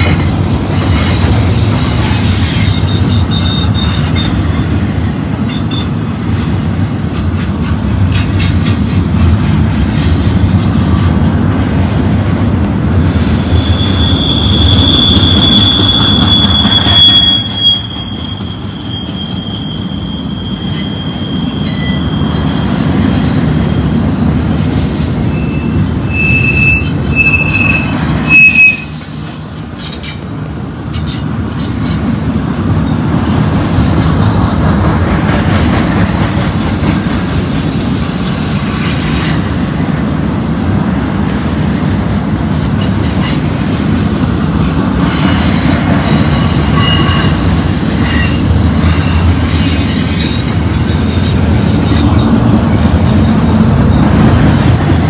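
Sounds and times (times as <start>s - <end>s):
train wheels rumbling on rails: 0.0s - 55.0s
high wheel squeal: 1.8s - 4.4s, 13.3s - 22.8s, 24.8s - 30.2s, 45.2s - 52.3s.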